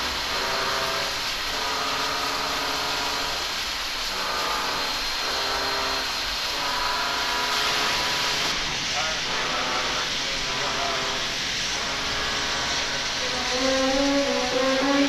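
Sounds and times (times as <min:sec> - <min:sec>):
diesel locomotive engines: 0:08.2 - 0:15.0.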